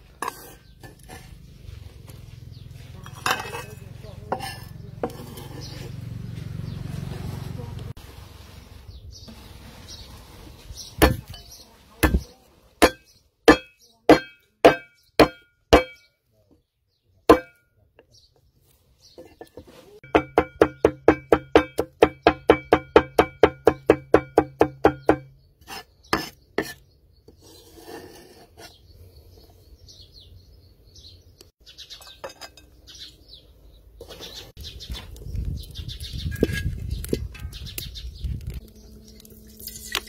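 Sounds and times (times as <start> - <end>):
cleaver chopping on wooden board: 11.0 - 11.3, 12.0 - 12.2, 12.8 - 16.0, 17.3 - 17.6, 20.0 - 25.3.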